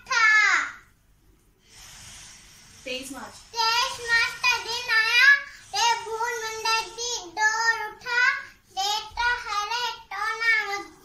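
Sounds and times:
child singing: 3.6s - 11.0s.

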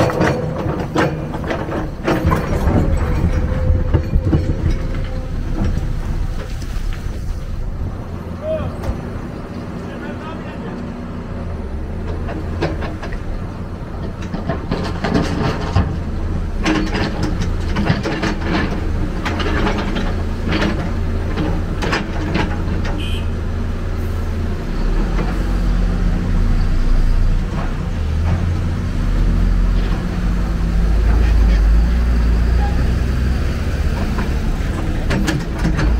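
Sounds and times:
metallic clanks and rattles: 0.0s - 7.7s, 12.0s - 23.0s, 29.7s - 35.9s
excavator diesel engine running: 0.0s - 35.9s.

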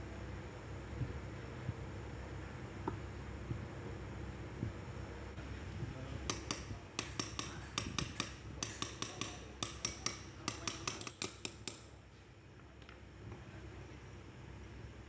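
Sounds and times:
hammer tapping on metal pulley: 6.2s - 11.9s.

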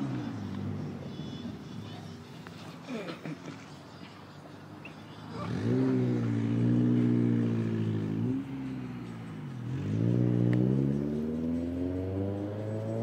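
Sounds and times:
vehicle engine revving: 4.9s - 13.0s.

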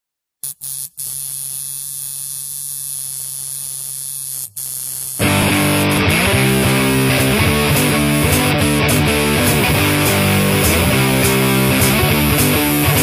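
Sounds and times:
electrical hum with hiss: 0.5s - 5.2s
punk rock music: 5.2s - 13.0s.

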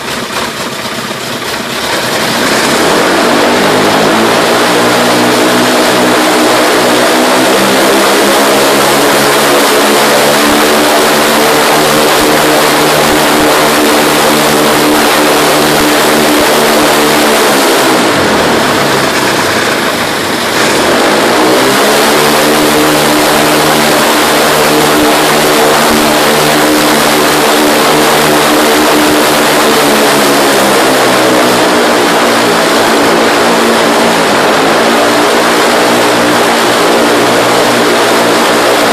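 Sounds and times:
aircraft engine running: 0.0s - 38.9s.

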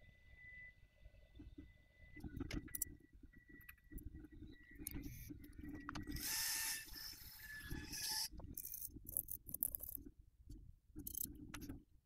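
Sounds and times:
soldering hiss with faint whine: 6.1s - 8.3s.

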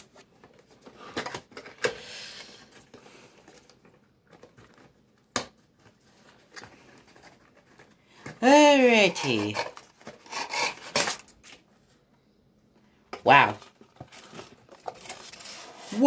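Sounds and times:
cardboard box rustling: 13.6s - 16.0s.

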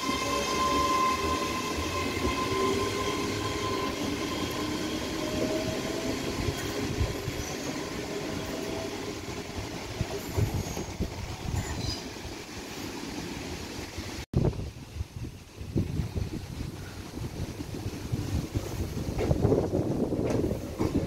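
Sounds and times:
train motor whine: 0.0s - 11.0s
train rail rumble: 0.0s - 21.0s.

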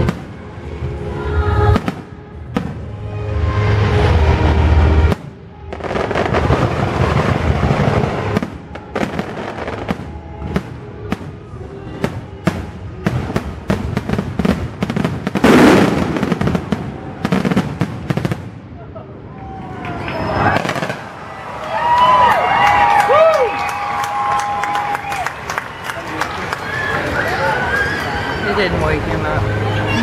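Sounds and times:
fireworks bangs and crackling: 0.0s - 0.9s, 1.7s - 18.8s, 20.0s - 22.0s
music: 0.0s - 15.4s.

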